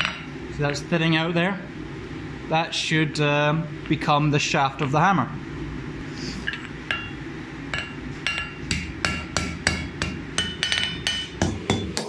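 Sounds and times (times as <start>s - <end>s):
hammer striking steel on anvil: 6.5s - 12.0s.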